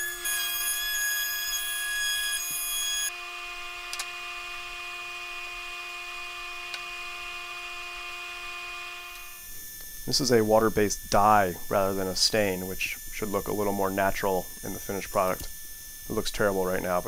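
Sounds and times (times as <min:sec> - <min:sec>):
router high whine: 0:00.0 - 0:17.0
quiet steady hum: 0:09.1 - 0:17.0.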